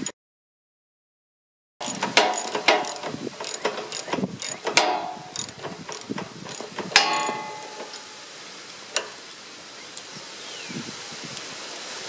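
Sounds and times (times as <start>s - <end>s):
ratchet clicks: 1.8s - 8.0s
loud metal clink: 1.8s - 8.1s
wrenches clinking on metal: 1.8s - 8.1s.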